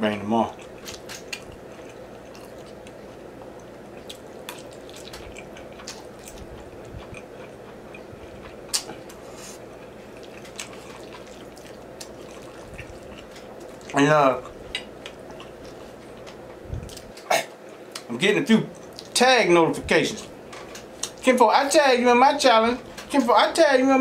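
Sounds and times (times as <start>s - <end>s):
faint steady hum: 0.0s - 24.0s
slurping and chewing spaghetti: 0.5s - 17.1s, 18.8s - 19.2s.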